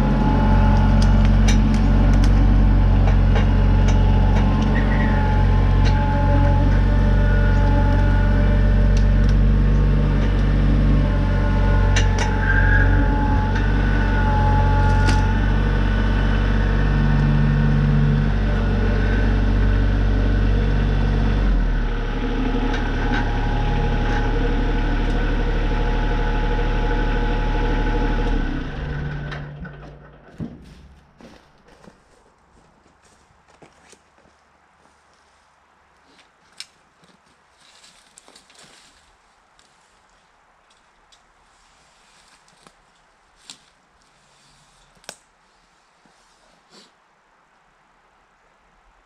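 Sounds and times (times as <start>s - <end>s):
tractor engine running: 0.0s - 32.2s.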